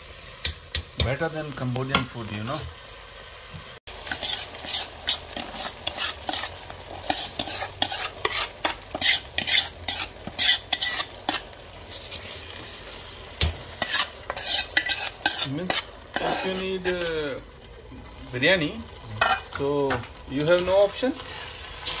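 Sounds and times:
ladle scraping a metal tray: 4.0s - 12.7s, 13.8s - 17.1s.

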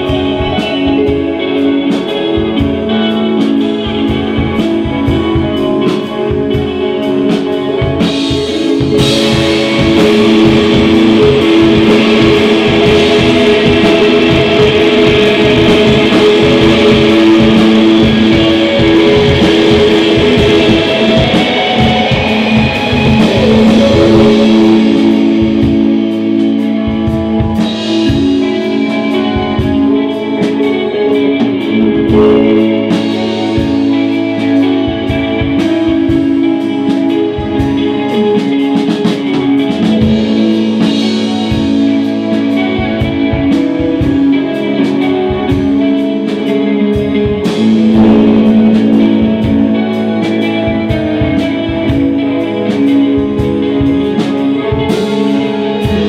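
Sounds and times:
drum kit: 0.0s - 56.0s
electric guitars: 0.0s - 56.0s
cymbals crashing: 8.1s - 35.8s, 47.5s - 52.8s.

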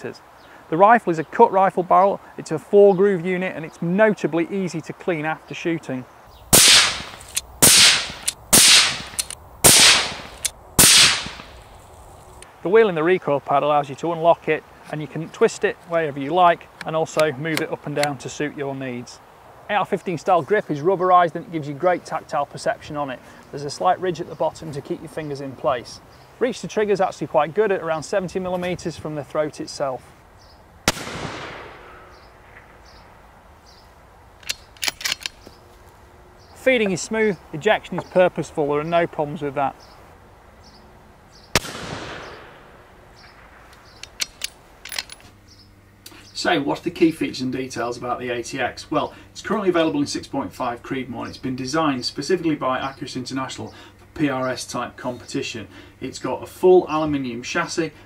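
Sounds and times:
rifle shots: 6.5s - 11.6s, 30.9s - 32.7s, 41.5s - 43.7s
rifle bolt metallic clicks: 6.6s - 11.6s, 16.8s - 18.2s, 34.4s - 35.6s, 43.7s - 45.4s.

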